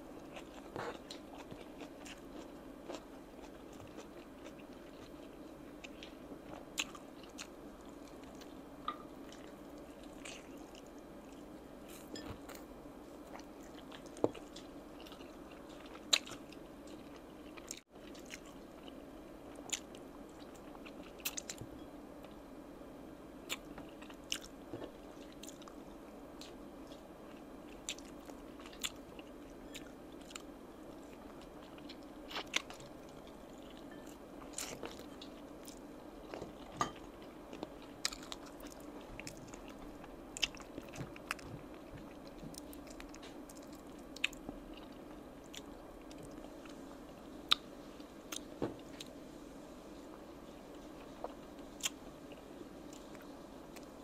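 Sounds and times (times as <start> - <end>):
low background hum: 0.0 - 54.0
chewing chicken wings: 0.2 - 8.6.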